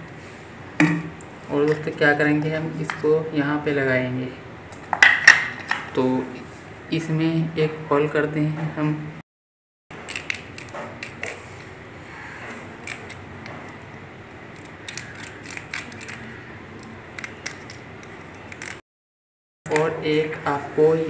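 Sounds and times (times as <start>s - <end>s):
scissors scraping plastic cap: 14.6s - 18.8s.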